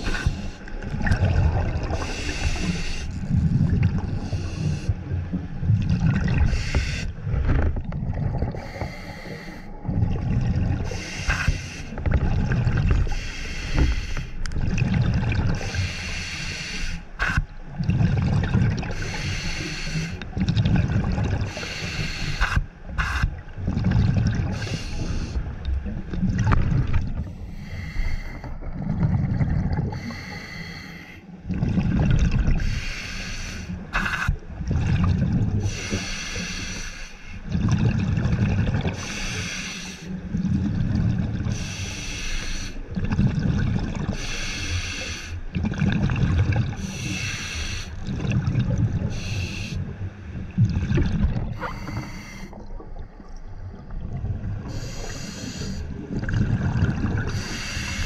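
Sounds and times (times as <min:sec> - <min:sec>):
exhaled bubbles rumbling: 0:00.0 - 0:16.0, 0:17.2 - 0:30.5, 0:31.4 - 0:33.0, 0:33.8 - 0:36.0, 0:37.4 - 0:39.4, 0:40.1 - 0:41.9, 0:42.7 - 0:58.0
hissing regulator inhalations: 0:02.0 - 0:03.3, 0:06.5 - 0:07.1, 0:08.6 - 0:09.7, 0:13.1 - 0:14.4, 0:15.6 - 0:17.4, 0:19.0 - 0:20.2, 0:21.5 - 0:23.3, 0:24.6 - 0:25.4, 0:32.6 - 0:34.3, 0:35.7 - 0:37.4, 0:39.0 - 0:40.1, 0:41.5 - 0:42.8, 0:44.1 - 0:45.4, 0:46.8 - 0:48.0, 0:49.1 - 0:49.8, 0:51.5 - 0:52.6, 0:54.6 - 0:55.9, 0:57.3 - 0:58.0.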